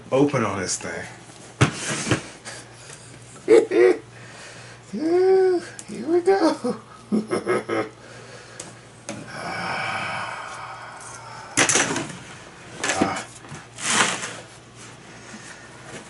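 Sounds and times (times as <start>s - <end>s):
cardboard scraping: 13.0s - 15.0s.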